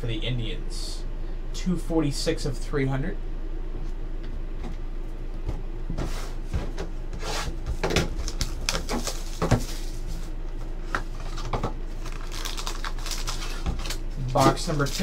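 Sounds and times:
shrink-wrap plastic tearing: 8.2 - 10.0, 11.2 - 15.0.

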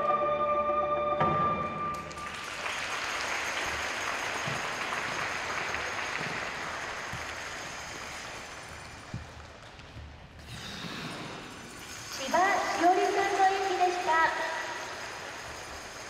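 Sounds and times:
audience applause: 1.9 - 9.1.

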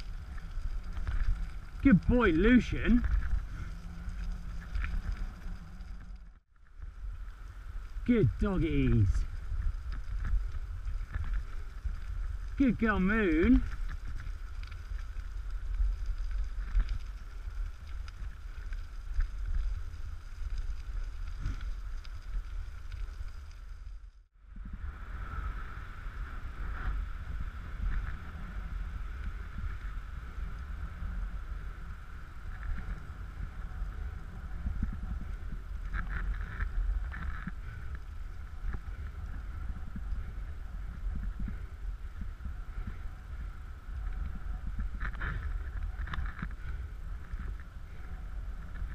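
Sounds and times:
rumble of movement on dirt track: 0.0 - 48.9
wind buffeting the microphone: 24.4 - 48.9.

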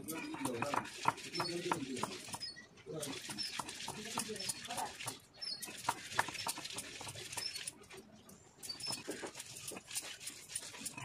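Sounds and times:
grinding stone knocking on stone slab: 0.2 - 2.5.

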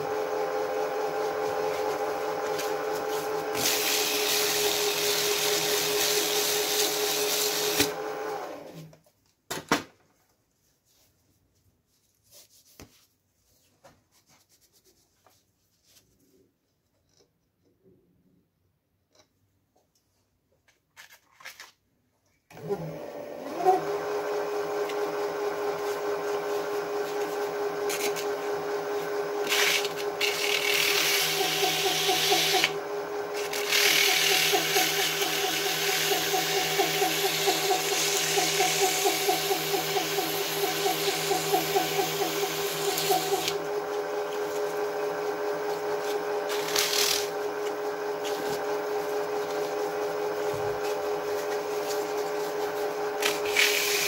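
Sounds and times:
metal lathe humming: 23.4 - 54.0.

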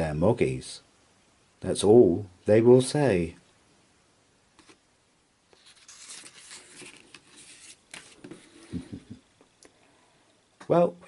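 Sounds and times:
book pages rustling: 4.6 - 4.8, 5.5 - 8.8.

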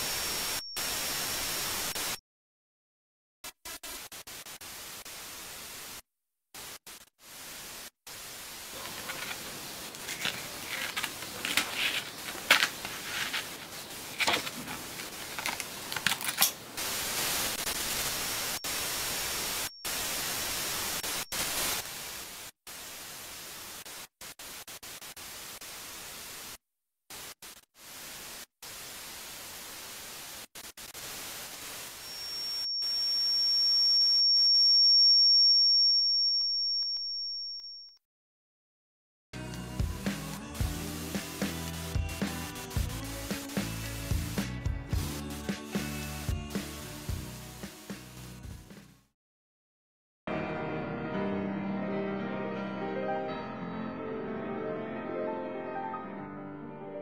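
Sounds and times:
high-pitched ringing tone: 0.0 - 2.0, 18.4 - 21.4, 32.0 - 38.0
static hiss with crackles: 0.0 - 2.2, 3.7 - 34.2, 40.8 - 48.4.

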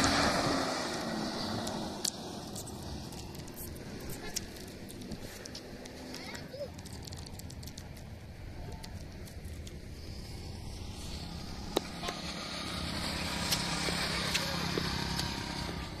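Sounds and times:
motorcycle riding past: 0.0 - 4.4, 10.0 - 16.0
low outdoor rumble: 0.0 - 16.0.

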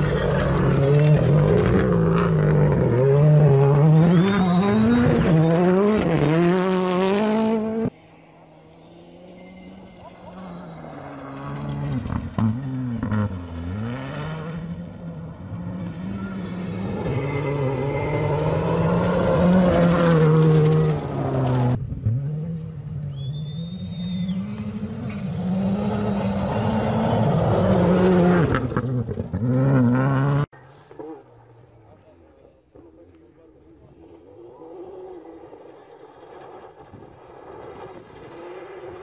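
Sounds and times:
rally car engines revving hard: 0.0 - 7.9, 8.8 - 31.5.

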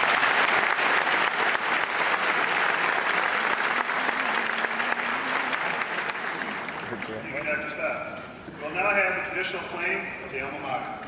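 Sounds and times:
large audience clapping: 0.0 - 7.8.

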